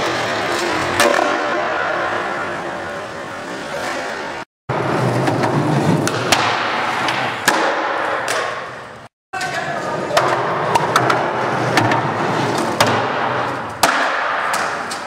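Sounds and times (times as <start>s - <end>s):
skateboard clacks: 0.0s - 1.6s, 4.7s - 8.7s, 9.4s - 15.0s
skateboard wheels rolling on concrete: 0.0s - 15.0s.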